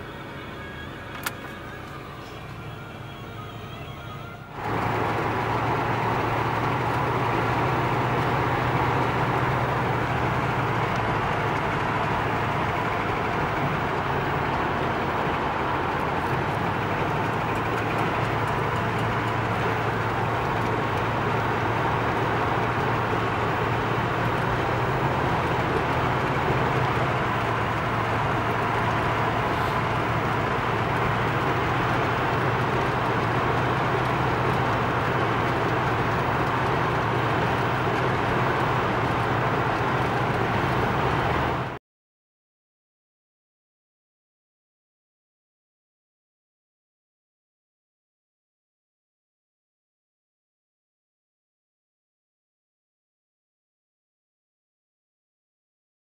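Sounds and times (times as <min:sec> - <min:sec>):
car engine drone: 0:00.0 - 0:41.8
road noise: 0:00.0 - 0:41.8.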